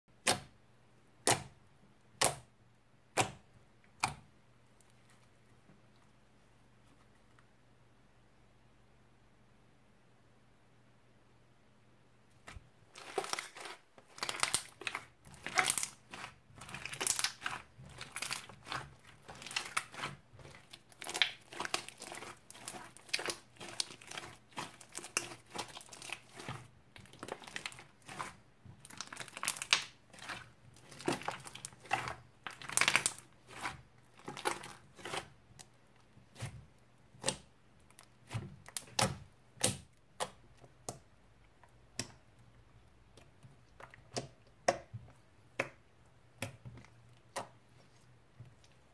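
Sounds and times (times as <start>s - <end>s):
slime crackling and popping: 12.9s - 41.0s.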